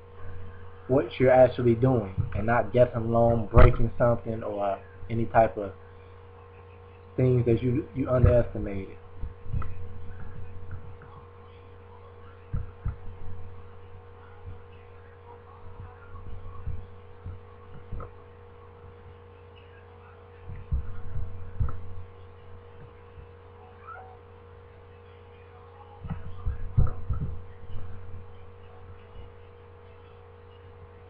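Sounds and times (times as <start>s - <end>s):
electrical hum: 0.0s - 31.0s
low thumps and clicks: 2.1s - 2.6s, 8.1s - 11.2s, 12.5s - 13.7s, 15.7s - 18.2s, 20.5s - 22.1s, 26.0s - 28.3s.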